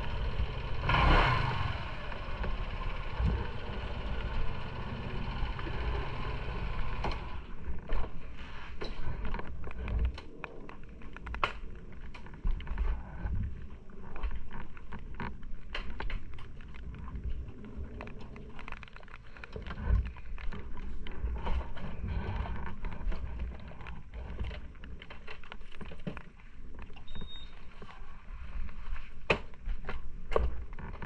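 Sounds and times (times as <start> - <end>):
wind rumble on microphone: 7.2 - 18.6
raindrops ticking on camera housing: 13.5 - 21.5.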